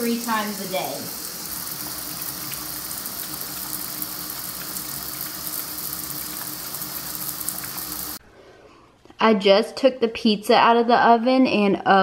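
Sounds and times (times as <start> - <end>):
shower water splashing on floor: 0.0 - 8.2.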